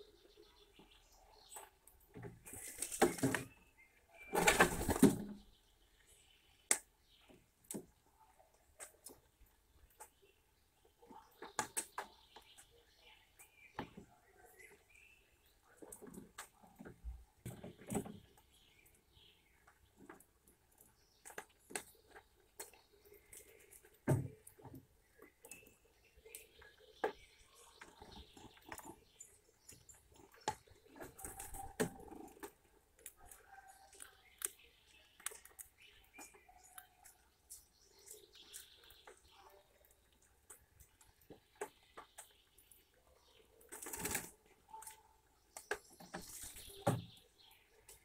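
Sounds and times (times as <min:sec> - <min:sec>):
squirrel cracking seeds: 0:27.8 - 0:42.8.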